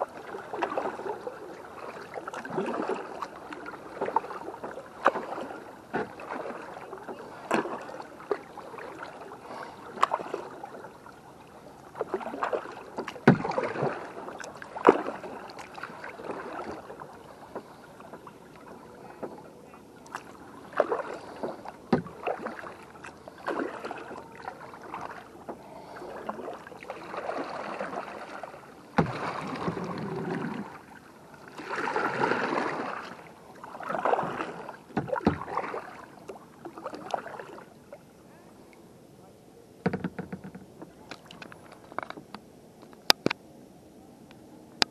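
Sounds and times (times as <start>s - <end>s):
paddle swishing and splashing: 0.0s - 38.7s
sharp knocks on kayak: 13.0s - 13.8s, 21.9s - 22.6s, 29.0s - 30.0s, 34.9s - 35.8s, 39.8s - 41.0s.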